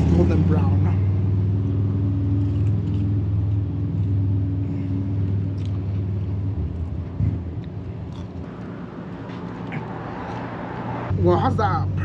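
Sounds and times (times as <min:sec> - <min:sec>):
vehicle engine drone: 0:00.0 - 0:12.0
crunchy chewing: 0:02.2 - 0:10.5.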